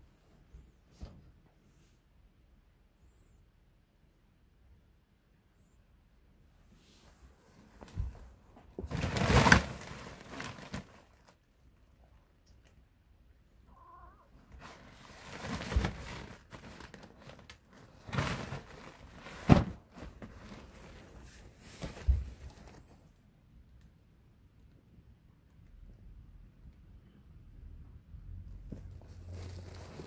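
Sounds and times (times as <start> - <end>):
nylon fabric rustling: 8.8 - 11.3, 14.6 - 22.8.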